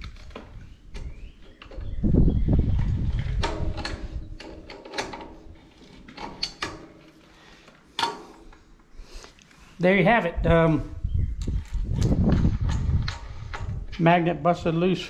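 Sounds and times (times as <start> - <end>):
metal parts clicking and clanking: 2.8 - 8.6.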